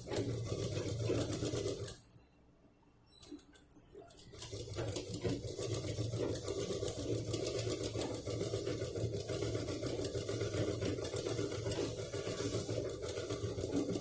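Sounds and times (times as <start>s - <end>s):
sewing machine running: 0.0s - 2.0s, 4.0s - 14.0s.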